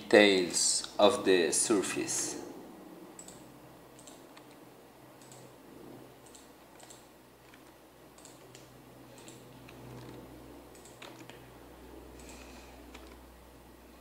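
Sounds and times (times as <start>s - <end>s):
low electrical hum: 0.0s - 14.0s
mouse and keyboard clicks: 5.2s - 5.5s, 6.2s - 11.4s, 12.2s - 13.2s.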